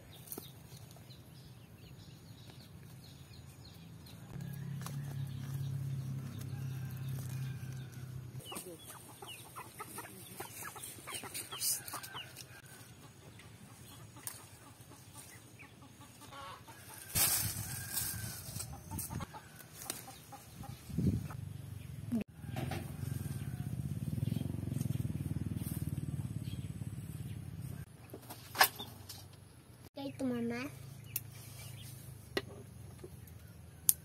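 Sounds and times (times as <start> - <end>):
chickens clucking: 8.4 - 17.2, 18.5 - 21.4.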